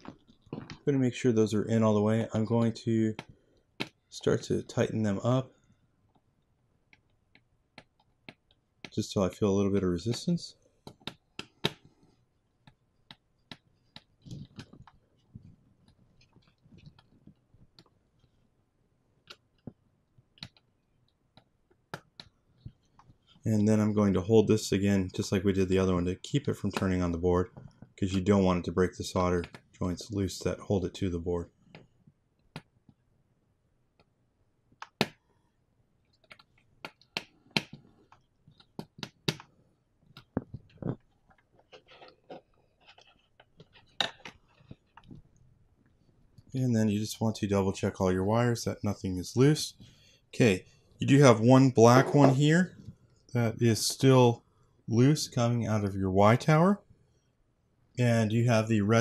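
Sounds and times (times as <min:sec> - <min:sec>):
wire handling noise: 0:12.7 - 0:18.4, 0:36.1 - 0:46.6.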